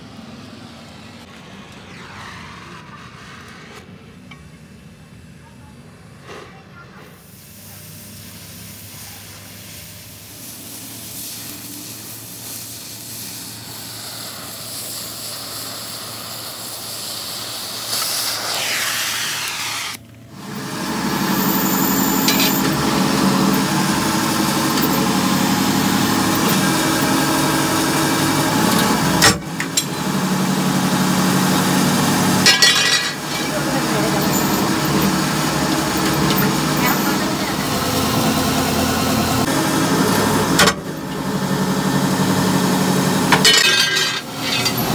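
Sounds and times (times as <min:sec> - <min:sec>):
cutting torch hissing: 0:07.1 - 0:44.9
press machine humming: 0:20.3 - 0:44.9.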